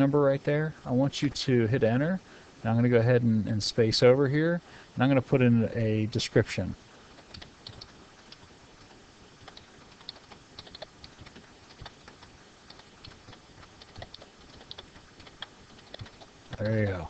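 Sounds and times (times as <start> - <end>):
keyboard typing clicks: 7.2 - 16.7.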